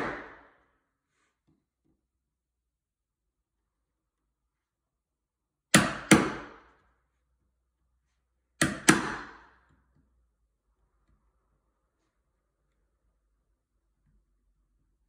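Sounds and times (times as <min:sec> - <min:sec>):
hammer striking chisel: 0:05.7 - 0:06.7, 0:08.6 - 0:09.7.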